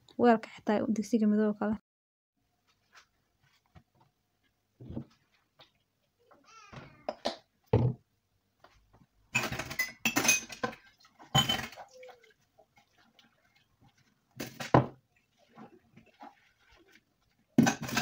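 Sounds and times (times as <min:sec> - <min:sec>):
dishes clinking in sink: 0:09.4 - 0:12.1
water splashing: 0:10.6 - 0:18.0.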